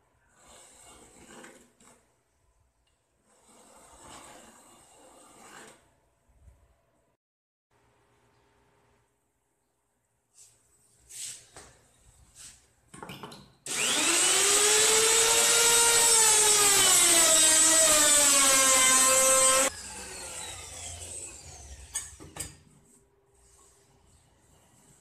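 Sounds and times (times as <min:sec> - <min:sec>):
router motor whine: 0:13.7 - 0:22.0.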